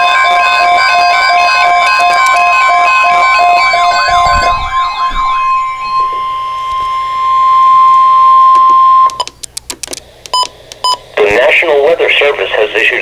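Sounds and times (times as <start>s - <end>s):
steady alarm tone: 0.0s - 9.2s
warbling siren-like alarm: 0.0s - 9.2s.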